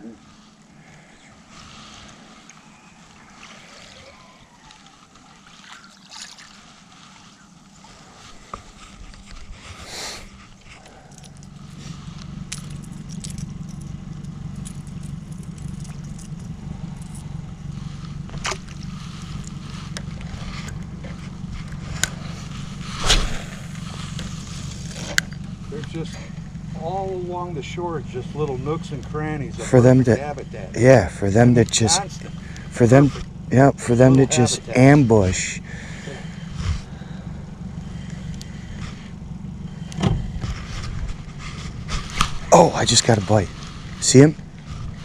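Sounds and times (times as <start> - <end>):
boat motor humming: 0.0 - 45.0
water sloshing: 1.3 - 13.0, 14.8 - 25.7.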